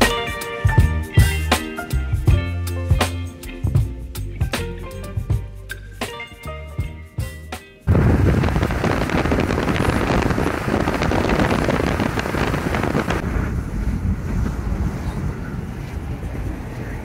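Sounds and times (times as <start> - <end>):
car driving rumble inside cabin: 7.9 - 17.0
wind buffeting microphone: 7.9 - 17.0.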